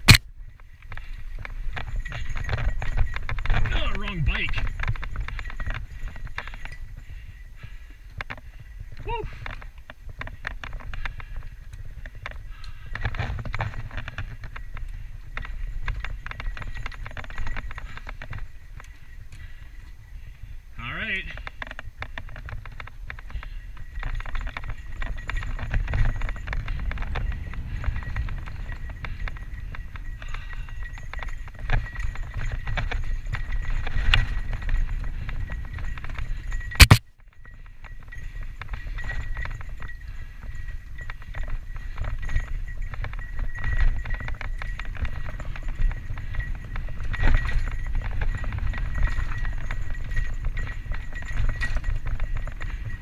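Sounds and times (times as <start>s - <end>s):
bike clattering and rattling: 0.0s - 20.6s, 21.3s - 53.0s
wind and tyre rumble: 0.0s - 53.0s.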